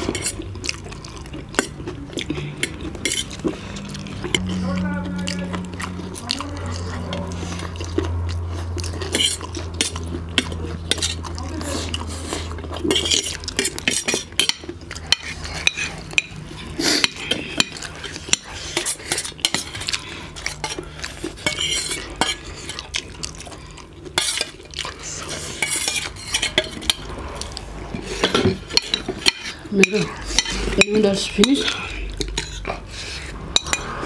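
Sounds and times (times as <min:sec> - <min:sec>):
slurping noodles: 0:00.0 - 0:30.8
cutlery clinking on plates: 0:17.0 - 0:19.9, 0:21.4 - 0:22.8, 0:25.5 - 0:27.1, 0:28.0 - 0:32.7, 0:33.6 - 0:34.0.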